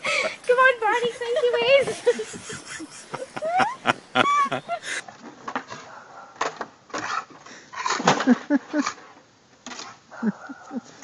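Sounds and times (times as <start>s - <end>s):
laughter: 1.0s - 5.0s, 8.1s - 9.0s, 10.2s - 11.0s.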